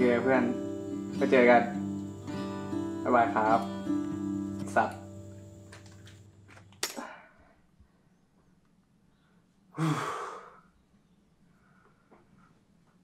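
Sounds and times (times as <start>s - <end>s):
man sighing: 6.9s - 7.5s, 9.8s - 10.6s.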